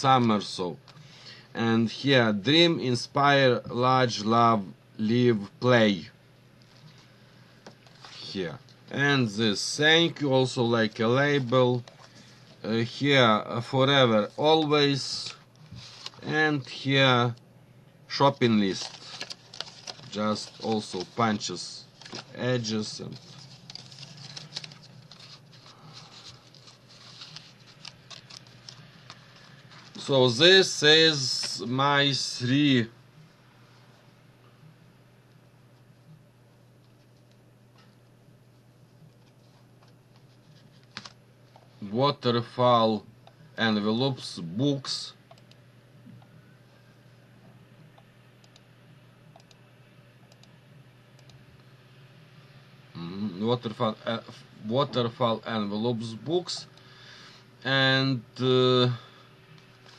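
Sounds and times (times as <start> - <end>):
low steady hum: 0.0 - 59.9
paper rustling and ticking: 18.4 - 30.4.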